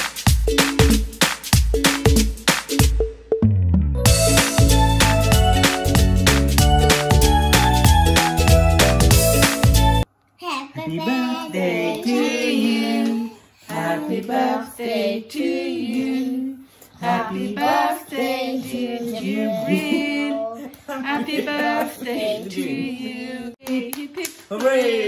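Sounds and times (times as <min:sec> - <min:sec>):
woman and children singing: 0:10.8 - 0:24.2.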